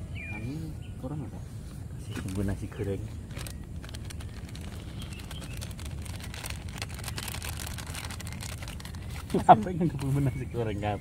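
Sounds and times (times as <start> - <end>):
plastic sachets crinkling: 2.1 - 10.4.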